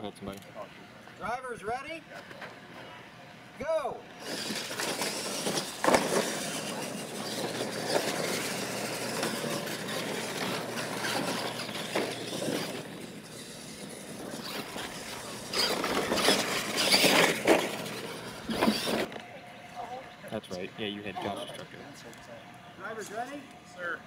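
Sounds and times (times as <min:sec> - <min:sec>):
toy truck motors running: 0:04.2 - 0:19.4
tyres churning dirt: 0:04.2 - 0:19.4.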